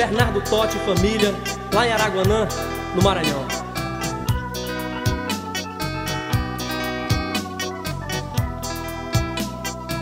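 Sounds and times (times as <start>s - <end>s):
instrumental guitar music: 0.0s - 10.0s
low thump beat: 2.2s - 5.6s.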